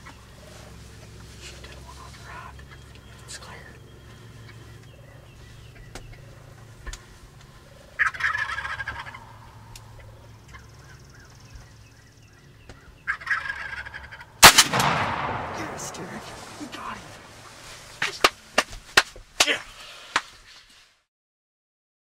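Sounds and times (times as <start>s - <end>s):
turkeys gobbling: 4.1s - 18.1s
shotgun blast echoing: 14.4s - 18.0s.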